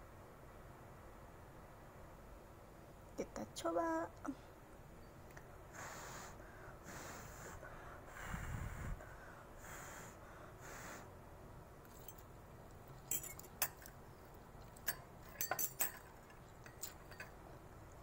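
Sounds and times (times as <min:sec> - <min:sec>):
metal utensils clinking on wok: 0:14.8 - 0:17.4.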